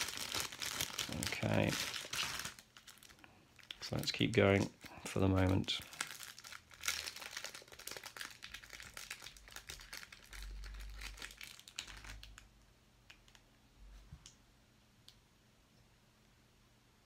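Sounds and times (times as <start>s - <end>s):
plastic crinkling and rustling: 0.0s - 13.4s.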